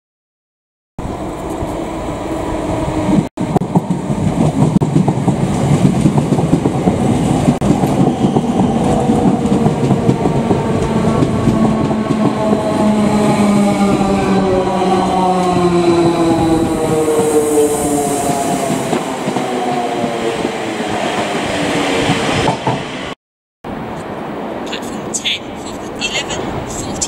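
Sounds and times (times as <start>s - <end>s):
train wheels clattering on rails: 3.5s - 14.1s, 18.2s - 23.0s.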